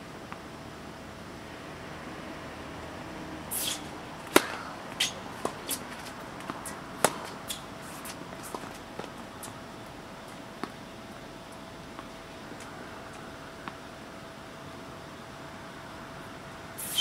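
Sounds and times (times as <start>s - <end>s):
tennis ball hit by racket: 3.5s - 8.8s
tennis ball bouncing on court: 4.2s - 9.5s.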